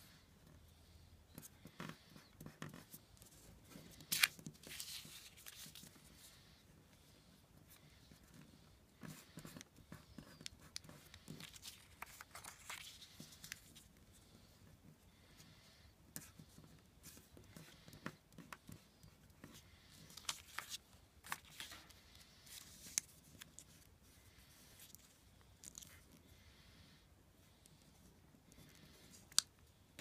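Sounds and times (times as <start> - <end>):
paper rustling and crinkling: 3.9 - 6.0, 11.3 - 13.9, 20.0 - 23.9.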